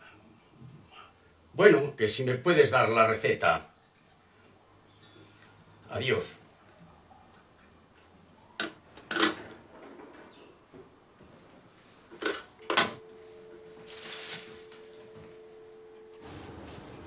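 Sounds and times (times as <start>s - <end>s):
steady low hum: 11.0s - 17.0s.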